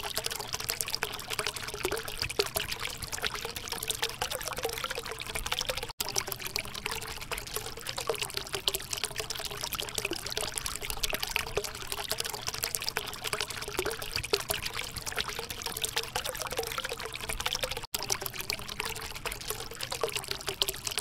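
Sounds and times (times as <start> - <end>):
fountain water trickling: 0.0 - 21.0.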